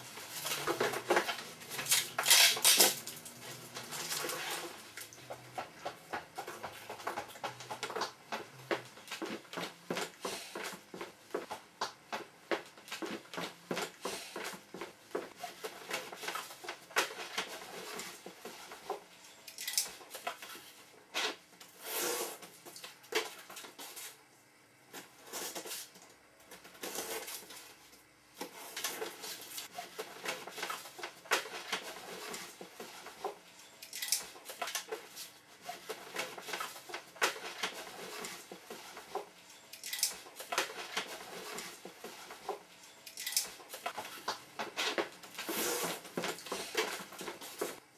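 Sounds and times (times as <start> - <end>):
small objects clicking and clattering: 0.3 - 5.8, 19.4 - 20.5, 33.7 - 35.0, 39.0 - 42.2, 42.9 - 45.0.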